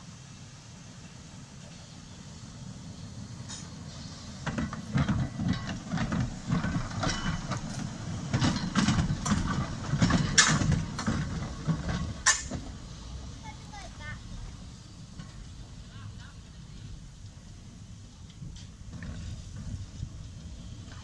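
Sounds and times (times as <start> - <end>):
tram passing rumble: 0.0 - 21.0
tram wheels clanking on track: 1.3 - 21.0.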